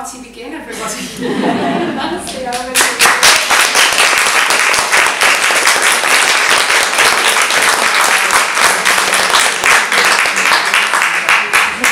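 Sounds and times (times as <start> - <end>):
audience applauding: 2.3 - 11.9.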